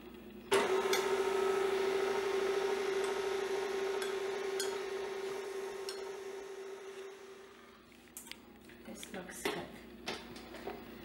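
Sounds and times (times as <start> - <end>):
stand mixer motor humming: 0.5 - 7.6.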